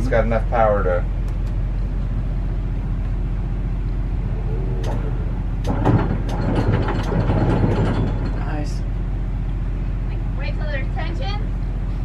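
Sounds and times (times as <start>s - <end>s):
generator humming: 1.1s - 11.9s
anchor windlass clattering: 3.8s - 8.9s.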